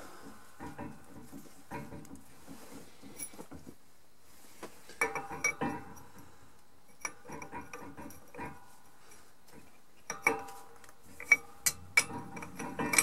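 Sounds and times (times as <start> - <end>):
metal parts clinking on metal: 10.1 - 13.0.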